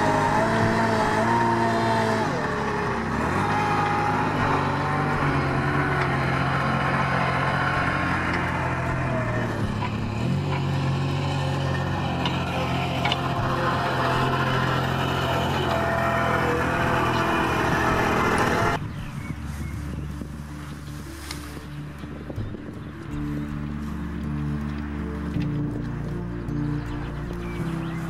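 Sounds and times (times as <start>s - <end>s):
backhoe loader engine running: 0.0s - 28.0s.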